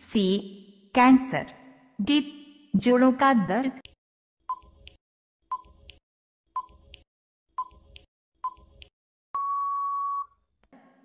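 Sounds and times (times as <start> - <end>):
long steady beep: 9.4 - 10.3
short beeps: 9.4 - 10.3.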